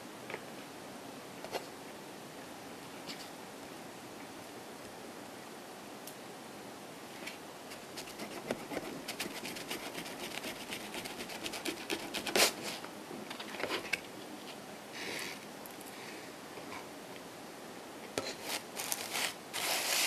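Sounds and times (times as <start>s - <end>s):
short breathy hiss: 14.9s - 16.4s.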